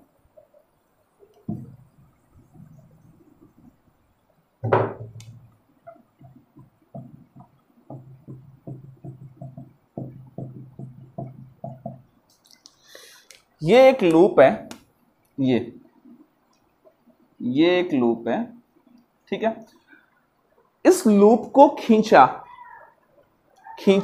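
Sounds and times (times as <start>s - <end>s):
marker strokes on a whiteboard: 5.3s - 12.1s.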